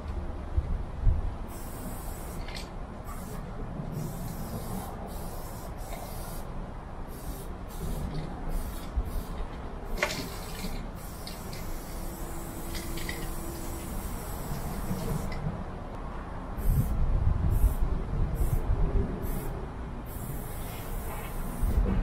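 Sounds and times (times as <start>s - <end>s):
spray paint can hissing: 1.5s - 6.5s, 7.1s - 15.4s, 16.6s - 17.8s, 18.4s - 18.6s, 19.2s - 19.5s, 20.1s - 21.9s.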